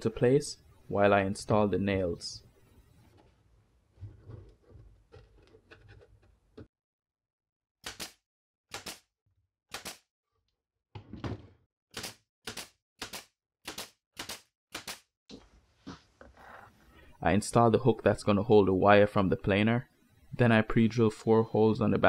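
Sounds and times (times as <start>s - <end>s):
nail gun firing into plywood: 7.8s - 9.1s, 12.0s - 15.1s.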